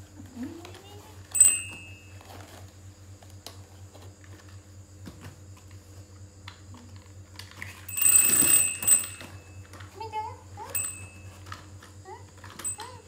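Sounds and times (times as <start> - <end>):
rustling scuffle: 0.2 - 6.1, 7.6 - 13.0.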